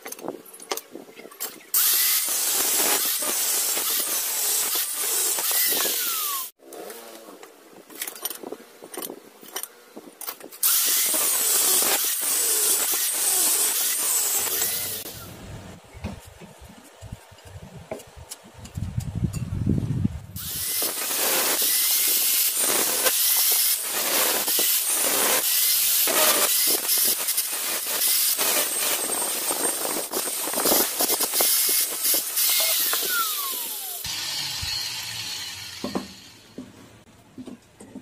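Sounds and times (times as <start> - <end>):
angle grinder cutting steel: 1.7 - 7.0, 10.6 - 15.3, 20.4 - 36.6.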